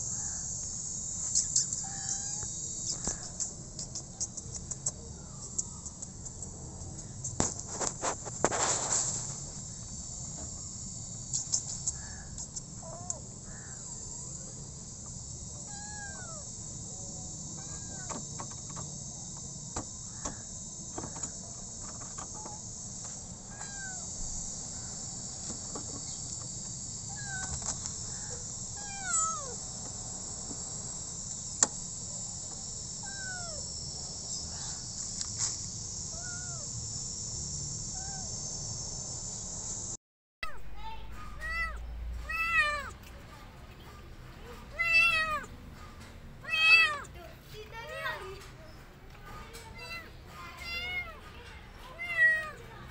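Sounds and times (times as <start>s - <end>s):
insects chirring: 0.0s - 52.9s
sharp clicks: 1.3s - 8.0s
cat meowing: 1.8s - 2.5s, 15.6s - 16.5s, 23.5s - 24.1s, 27.1s - 27.6s, 28.8s - 29.6s, 33.0s - 33.6s, 36.1s - 36.7s, 41.2s - 43.0s, 44.7s - 45.5s, 46.4s - 47.1s, 49.8s - 51.2s, 51.9s - 52.6s.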